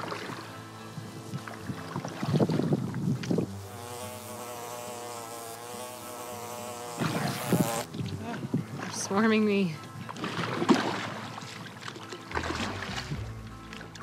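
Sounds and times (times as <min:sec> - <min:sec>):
oars splashing water: 0:00.0 - 0:03.6, 0:07.0 - 0:14.0
fly buzzing: 0:00.0 - 0:14.0.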